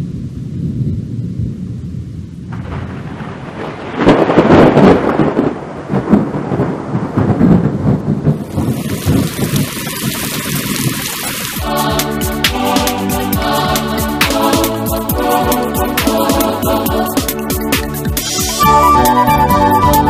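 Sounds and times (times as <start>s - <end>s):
steady rain hissing: 0.0s - 19.2s
thunder rumbling: 0.0s - 20.0s
loud crash of thunder: 2.4s - 11.0s.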